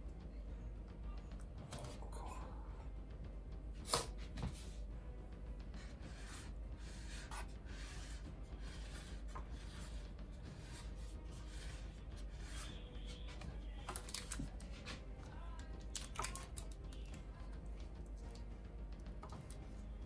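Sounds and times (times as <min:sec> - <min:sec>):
metal stand scraping on wood: 0:05.8 - 0:13.2.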